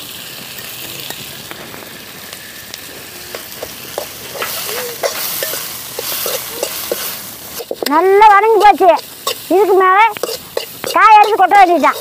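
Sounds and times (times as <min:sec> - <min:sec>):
vegetables sizzling in oil: 0:00.0 - 0:12.0
metal spoon scraping pan: 0:03.3 - 0:12.0.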